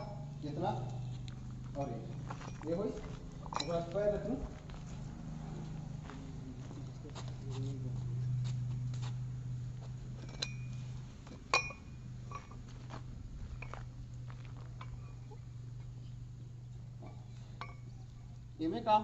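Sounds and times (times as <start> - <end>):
low hum: 0.0 - 19.0
metallic clinks: 1.7 - 4.0, 10.2 - 10.8, 11.5 - 12.6, 17.0 - 18.0.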